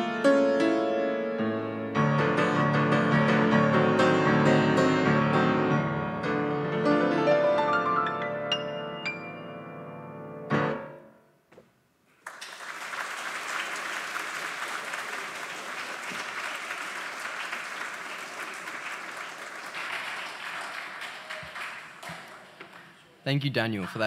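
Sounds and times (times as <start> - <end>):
audience applause: 12.2 - 23.2.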